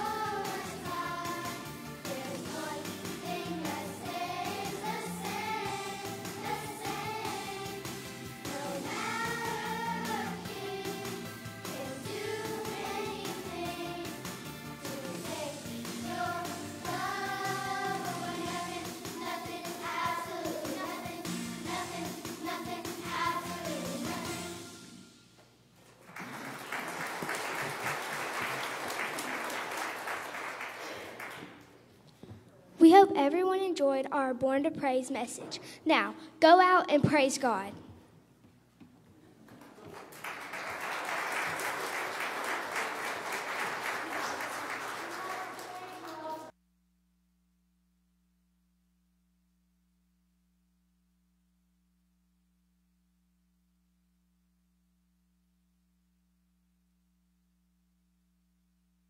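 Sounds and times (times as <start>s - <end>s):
group singing with accompaniment: 0.0s - 14.2s, 14.8s - 24.7s
applause: 26.0s - 31.8s, 39.5s - 46.5s.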